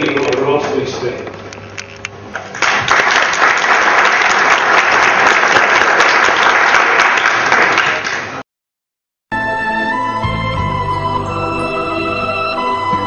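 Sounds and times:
crowd applauding: 2.5s - 8.4s
music: 9.3s - 13.0s.

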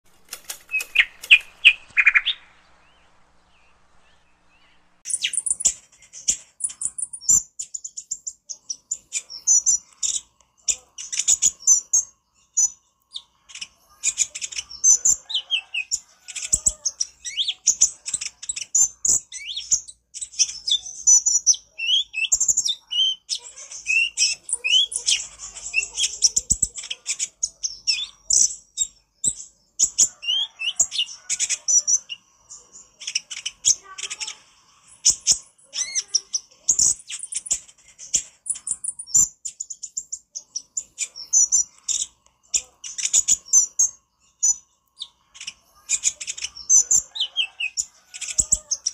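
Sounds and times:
sunbird singing high twittering notes: 0.6s - 5.8s.

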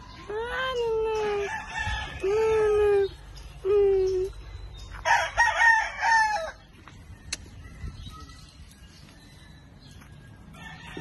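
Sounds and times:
rooster crowing: 5.0s - 6.6s, 10.5s - 11.0s.

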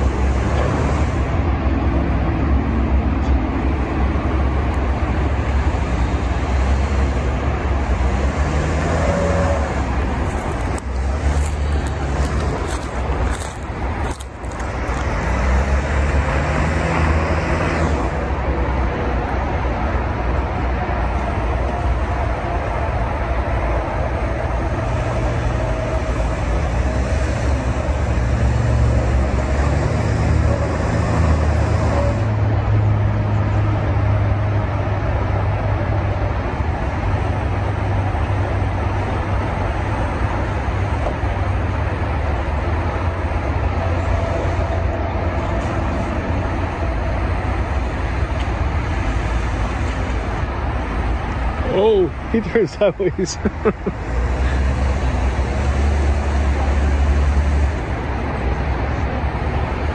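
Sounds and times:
car engine running at low revs: 0.0s - 59.9s.

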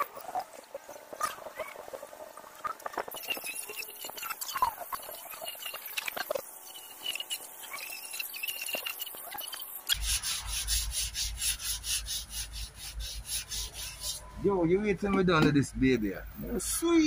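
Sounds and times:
hand scraping on wood: 10.0s - 14.4s.

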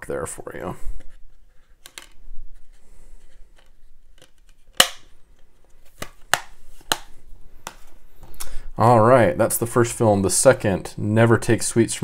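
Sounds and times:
plastic case clicks: 3.6s - 5.1s, 5.9s - 7.8s
plastic case snapping shut: 4.2s - 5.1s, 6.0s - 7.8s.

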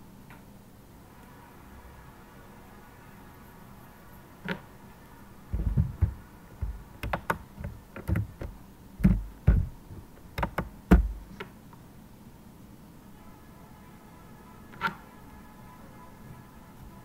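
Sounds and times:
computer keyboard typing: 5.6s - 9.7s, 10.3s - 11.3s.

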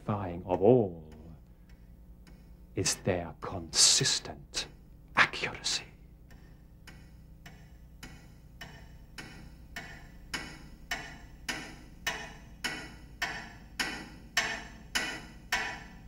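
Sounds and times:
clock ticking: 0.0s - 16.0s.

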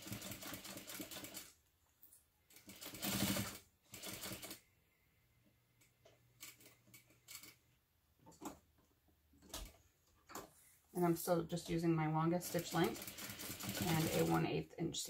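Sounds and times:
sewing machine stitching: 0.0s - 1.6s, 2.5s - 4.6s, 12.2s - 14.4s.

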